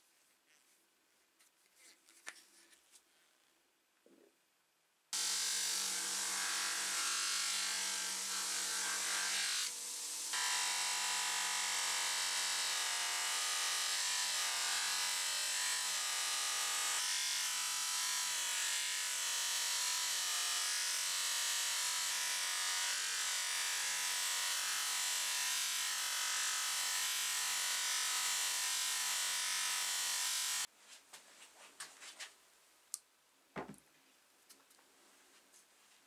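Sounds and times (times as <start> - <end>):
bench grinder motor hum: 5.2 - 30.7.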